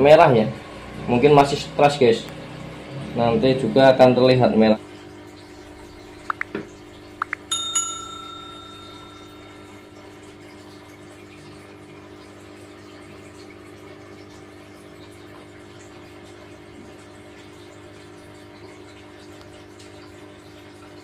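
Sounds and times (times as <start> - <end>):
aquarium air pump hum: 0.0 - 21.0
bubbling water: 4.8 - 21.0
bell ding: 7.5 - 10.2.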